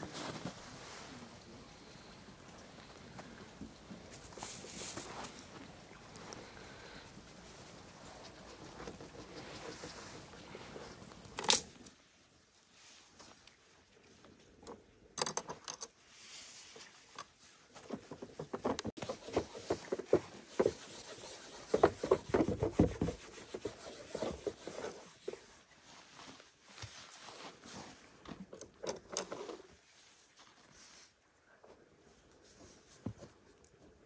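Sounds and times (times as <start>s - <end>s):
rustling: 0.0s - 11.8s.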